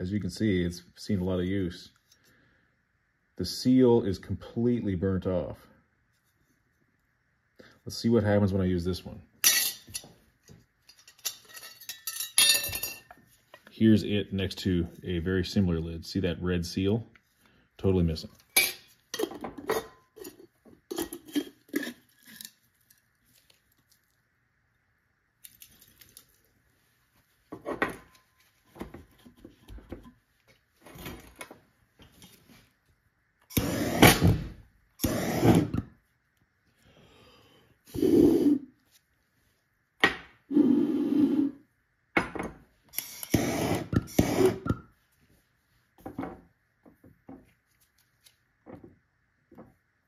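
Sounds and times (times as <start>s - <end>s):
glass jar clinking: 10.9s - 13.2s.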